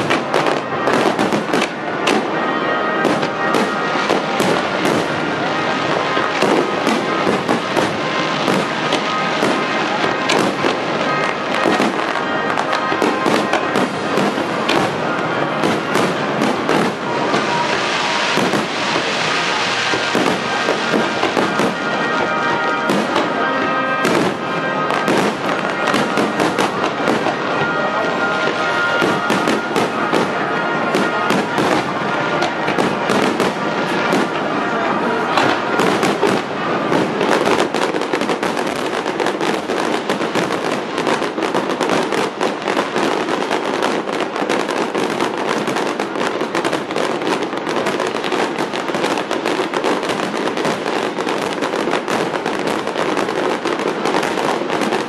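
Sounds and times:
fireworks booming and crackling: 0:00.0 - 0:55.0.

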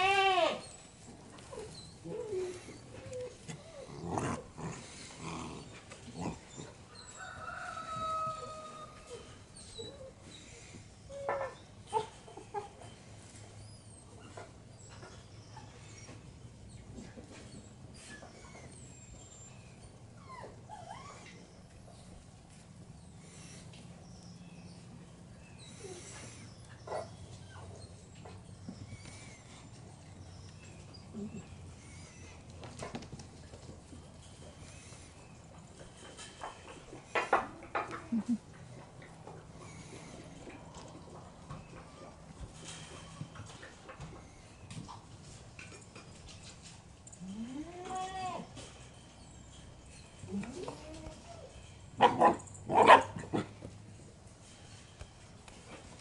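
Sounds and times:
puppies whimpering yelps: 0:00.6 - 0:07.6, 0:08.2 - 0:16.3, 0:17.3 - 0:22.0, 0:25.6 - 0:32.4
faint birdsong: 0:00.6 - 0:47.4.

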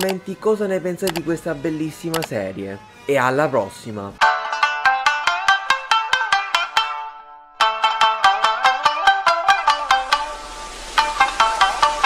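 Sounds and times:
bright plucked notes: 0:04.2 - 0:12.0.

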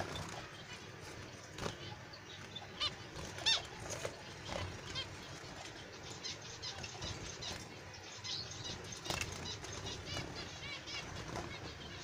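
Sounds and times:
finches beeping calls: 0:00.0 - 0:12.0.

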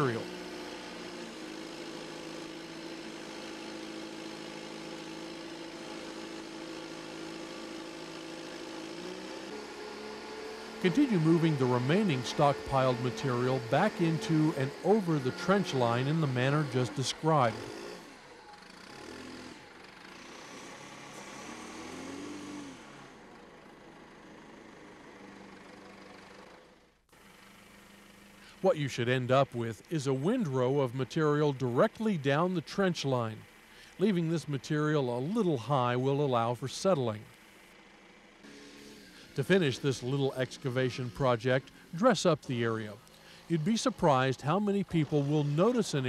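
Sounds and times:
diesel engine running: 0:00.0 - 0:46.0.

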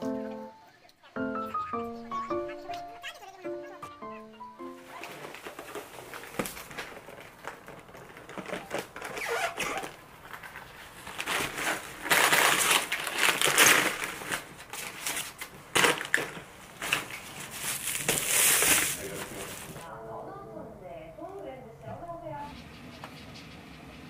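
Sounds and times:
crinkling and rustling handling: 0:04.6 - 0:19.9.

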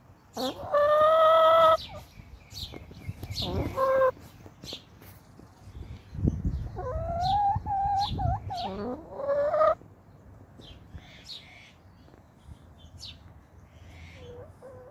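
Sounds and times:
hens calling: 0:00.4 - 0:02.1, 0:03.2 - 0:04.3, 0:06.8 - 0:09.8.

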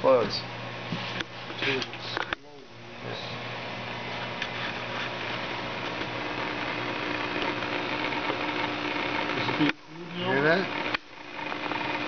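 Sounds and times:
steady mechanical hum: 0:00.0 - 0:12.0.

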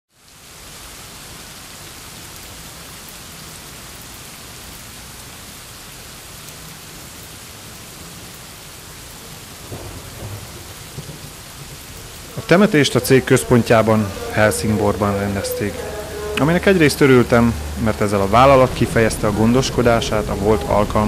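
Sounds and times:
steady rain: 0:00.1 - 0:21.0.

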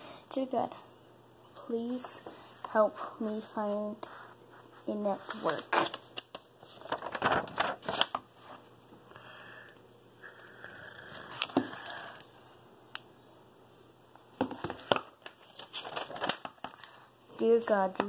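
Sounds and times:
soft rustling of notebook: 0:01.8 - 0:09.0, 0:15.2 - 0:18.0.

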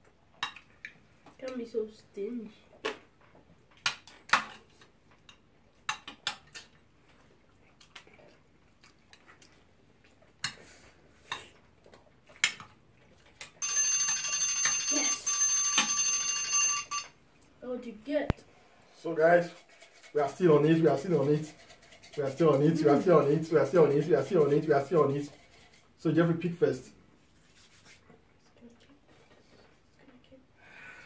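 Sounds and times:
phone timer alarm ringing: 0:13.6 - 0:17.2.

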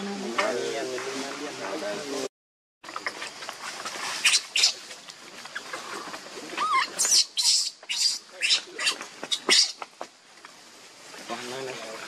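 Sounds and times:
baby monkey squealing: 0:04.2 - 0:04.8, 0:06.6 - 0:09.8.

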